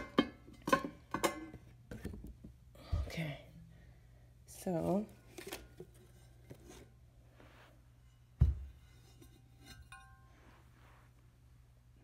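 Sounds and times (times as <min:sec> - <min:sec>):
faint metallic ring: 0:08.0 - 0:10.8
heavy lid thud on rug: 0:08.4 - 0:08.8.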